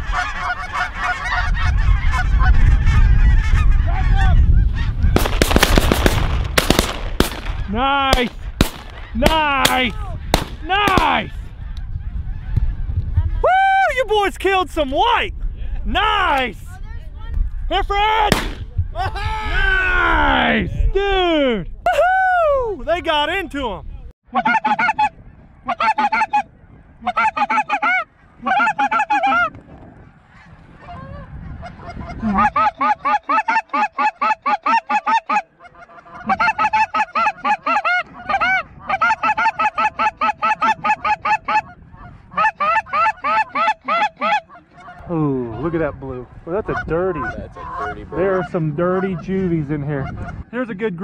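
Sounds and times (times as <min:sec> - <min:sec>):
goose honking: 0:00.0 - 0:05.2, 0:24.3 - 0:29.6, 0:30.3 - 0:45.7, 0:46.6 - 0:50.5.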